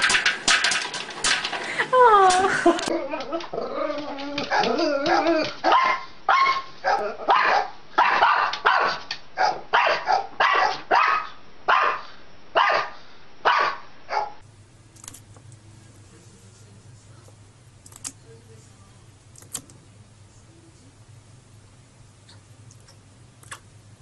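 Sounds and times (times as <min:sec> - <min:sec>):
small dog barking: 0:04.5 - 0:14.4.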